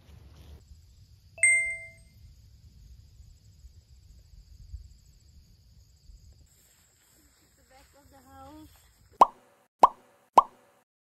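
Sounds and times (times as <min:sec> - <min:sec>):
bright ding: 0:01.4 - 0:02.0
faint high-pitched tones: 0:01.4 - 0:02.2.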